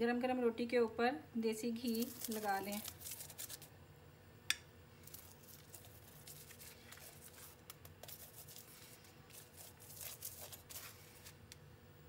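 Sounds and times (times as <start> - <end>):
spoon scraping on roti: 1.8 - 3.7, 5.0 - 11.6.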